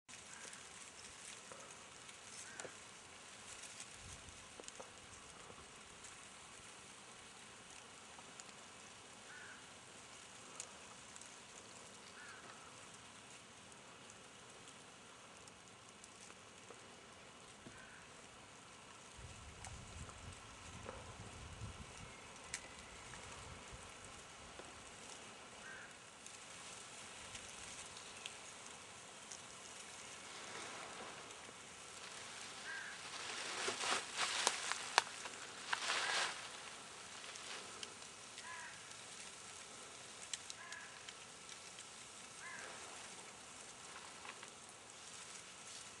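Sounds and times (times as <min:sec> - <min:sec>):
dry reeds rustling: 0:00.1 - 0:46.0
faint outdoor hiss: 0:00.1 - 0:46.0
light ticks: 0:21.9 - 0:30.0, 0:33.1 - 0:43.1.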